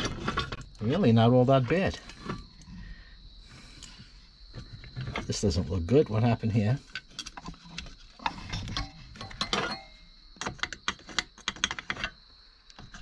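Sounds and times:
small metal parts rattling: 0.0 - 0.9, 6.8 - 12.2.

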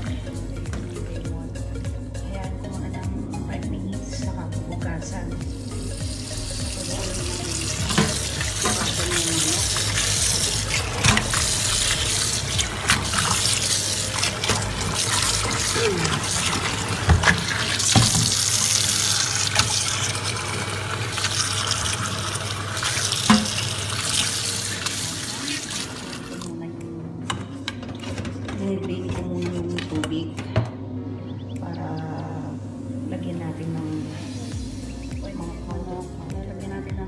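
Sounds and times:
tap water running into strainer: 5.6 - 26.5.

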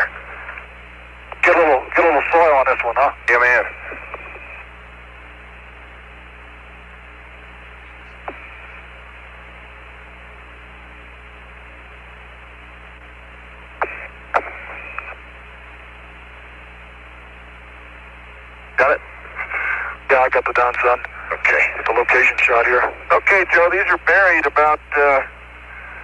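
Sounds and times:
radio clicks and blips: 0.0 - 4.8, 7.4 - 9.2, 12.4 - 16.0, 18.7 - 26.0
low hum: 0.0 - 26.0
radio hiss: 0.0 - 26.0.

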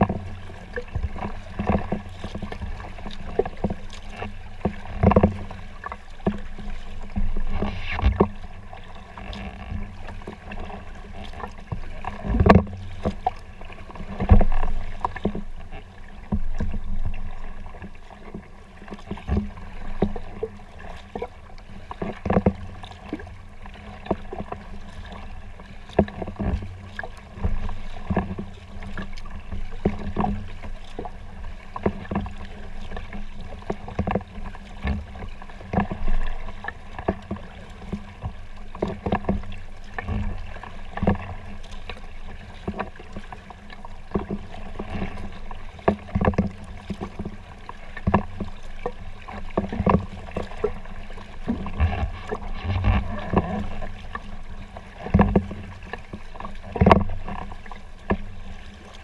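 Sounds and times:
paddle strokes splashing: 0.0 - 59.0
water sloshing along hull: 0.0 - 59.0.

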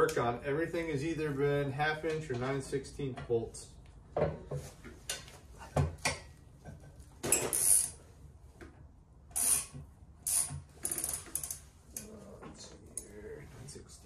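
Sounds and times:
ratchet wrench clicking: 7.5 - 8.0, 9.3 - 11.7.

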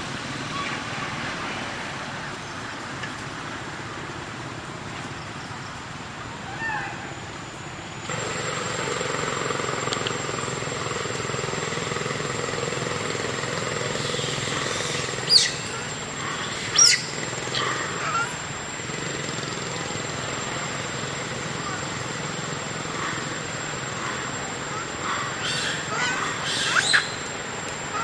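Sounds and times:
steady outdoor drone: 0.0 - 28.0
thin high whine: 6.4 - 28.0
sharp high animal calls: 14.0 - 18.5, 22.9 - 27.3.

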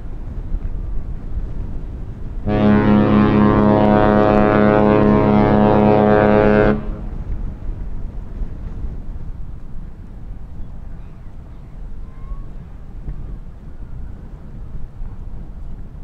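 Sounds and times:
ship's horn blast: 2.4 - 7.4.

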